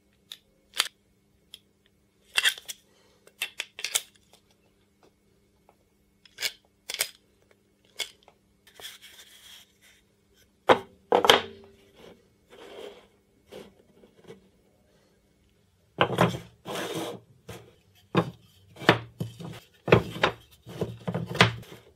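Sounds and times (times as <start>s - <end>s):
blocks sliding and tapping: 16.0s - 21.9s
blocks knocking on wooden table: 18.2s - 21.6s.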